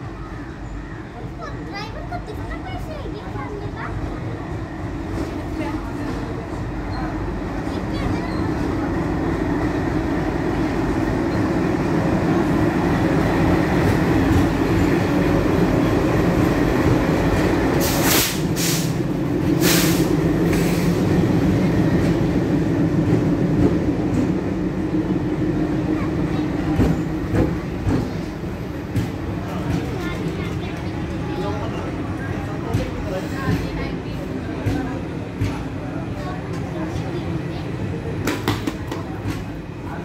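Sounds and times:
diesel locomotive engine drone: 0:00.0 - 0:40.0
air hiss bursts: 0:17.8 - 0:19.0, 0:19.6 - 0:21.0.

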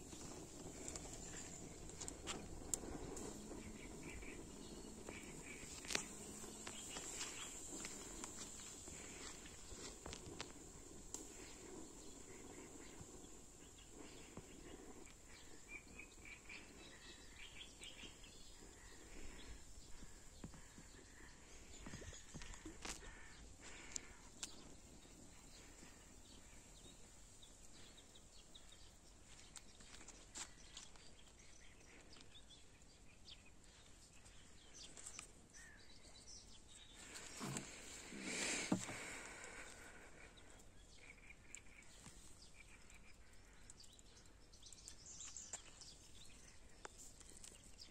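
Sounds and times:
steady high hiss: 0:00.0 - 0:20.3
faint bird chirps: 0:00.0 - 0:47.9
faint sharp clicks: 0:11.1 - 0:11.5.

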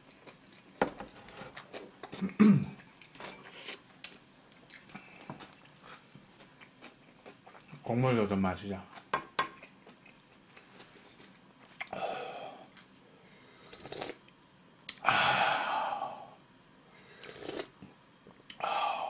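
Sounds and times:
slurping hot broth: 0:13.6 - 0:14.2, 0:17.2 - 0:17.8.

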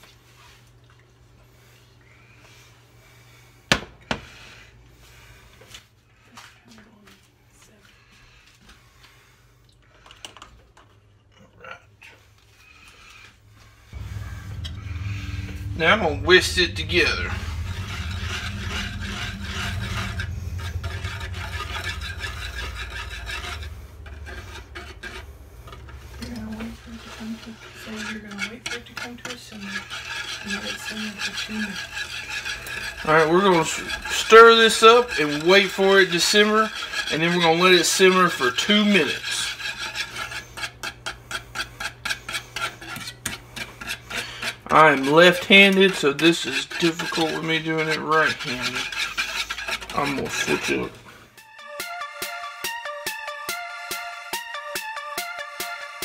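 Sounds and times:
whisk scraping a saucepan: 0:00.3 - 0:06.6, 0:07.9 - 0:51.4
steady low hum: 0:12.4 - 0:51.4.

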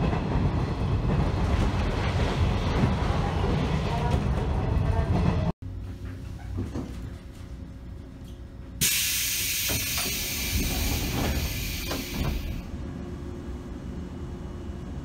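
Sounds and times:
low train hum: 0:00.0 - 0:15.0
pneumatic door hissing: 0:08.8 - 0:12.6.

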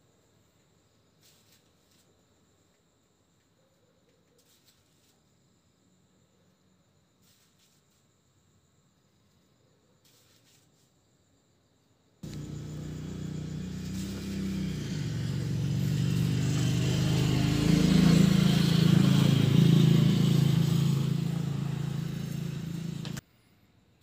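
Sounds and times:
vehicle engine passing by: 0:12.2 - 0:23.2.

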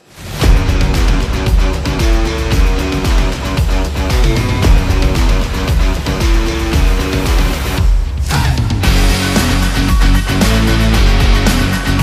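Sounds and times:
music with driving drum beat: 0:00.2 - 0:12.0.

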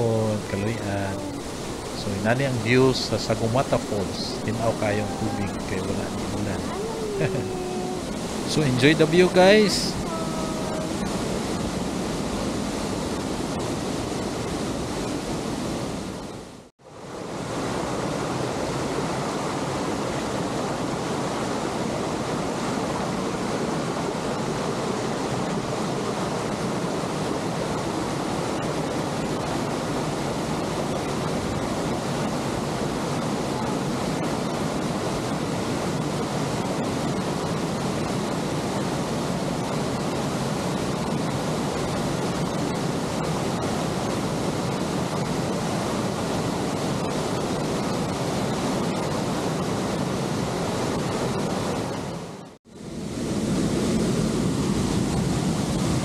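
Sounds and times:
waterfall rushing: 0:00.0 - 0:13.9.

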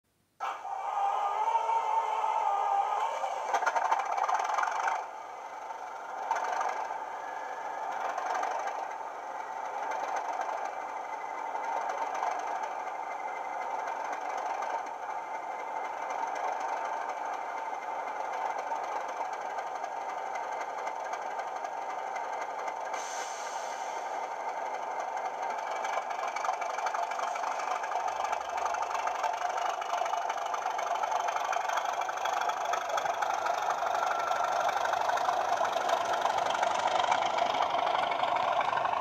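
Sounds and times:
diesel engine idling through small speaker: 0:00.4 - 0:39.0.

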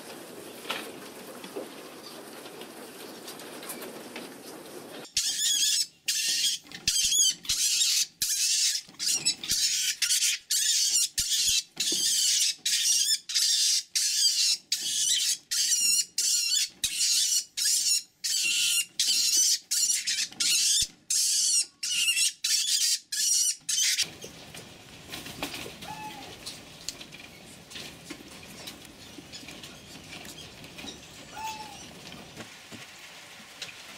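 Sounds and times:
mink shrieking squeals: 0:05.2 - 0:24.1, 0:25.8 - 0:26.4, 0:31.3 - 0:31.9.

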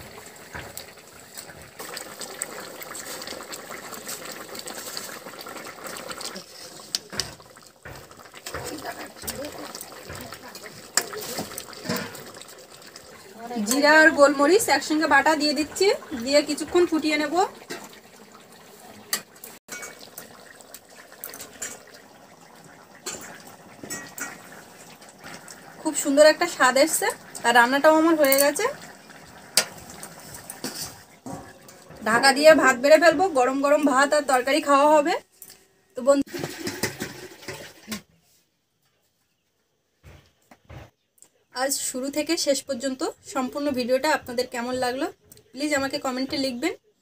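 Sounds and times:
curry bubbling in a pot: 0:00.0 - 0:38.0
metal ladle knocking pan: 0:19.1 - 0:20.0, 0:23.0 - 0:24.4, 0:30.6 - 0:33.4.

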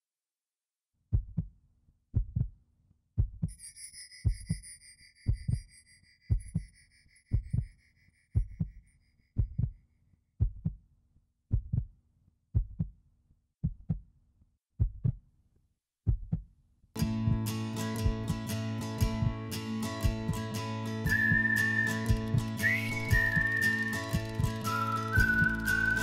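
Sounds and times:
slow heartbeat: 0:01.1 - 0:01.5, 0:02.2 - 0:02.6, 0:03.2 - 0:03.6, 0:05.3 - 0:05.7, 0:06.3 - 0:07.8, 0:08.4 - 0:08.8, 0:09.4 - 0:09.8, 0:10.4 - 0:10.8, 0:11.5 - 0:11.9, 0:12.6 - 0:13.0, 0:13.6 - 0:14.0, 0:14.8 - 0:15.2, 0:16.1 - 0:16.5, 0:17.1 - 0:18.4, 0:19.0 - 0:21.4
high shimmering chime: 0:03.5 - 0:08.4
guitar music: 0:17.0 - 0:26.0.

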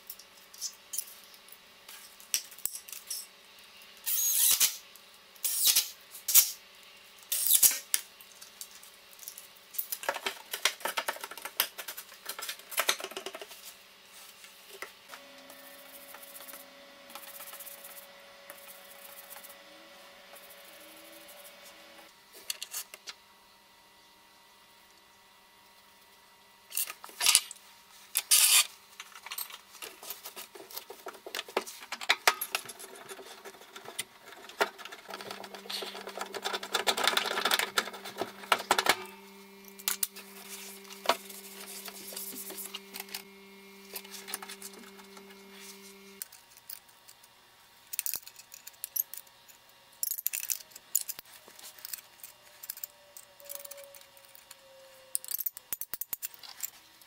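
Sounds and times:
steady low hum: 0:13.8 - 0:22.3, 0:30.3 - 0:46.3
metallic clicks and scraping of tools: 0:47.9 - 0:56.9.

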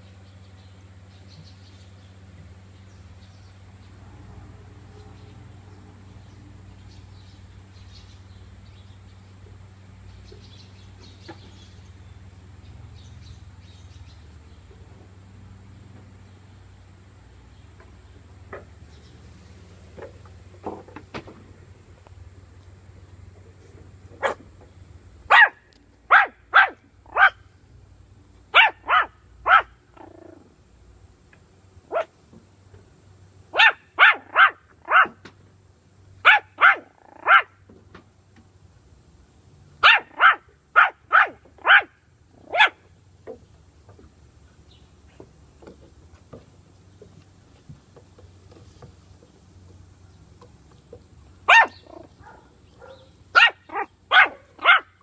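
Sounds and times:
puppy yapping: 0:24.2 - 0:24.4, 0:25.3 - 0:27.4, 0:28.5 - 0:30.4, 0:31.9 - 0:32.1, 0:33.5 - 0:35.2, 0:36.2 - 0:37.6, 0:39.8 - 0:42.8, 0:51.5 - 0:55.0.

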